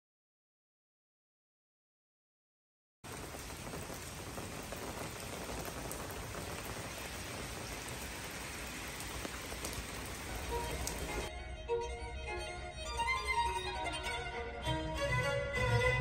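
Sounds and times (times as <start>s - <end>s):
rain on pavement and puddles: 3.0s - 11.3s
single raindrop ticks: 3.2s - 11.3s.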